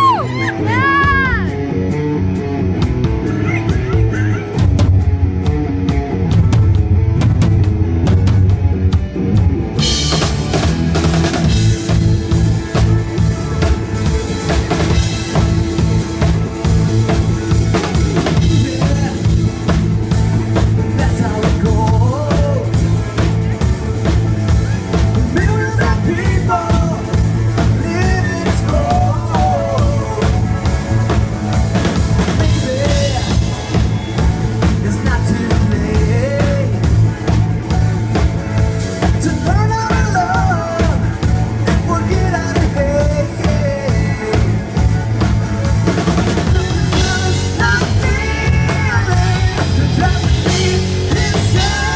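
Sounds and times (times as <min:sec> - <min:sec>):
rock band playing: 0:00.0 - 0:51.9.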